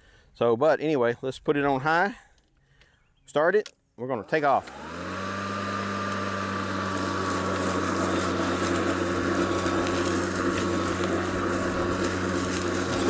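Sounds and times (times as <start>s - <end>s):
electric lawn mower humming: 4.2s - 13.0s.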